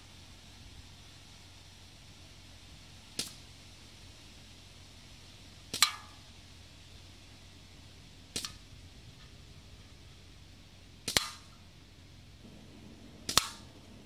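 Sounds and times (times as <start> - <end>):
gunshots hitting metal can: 13.2 - 13.8.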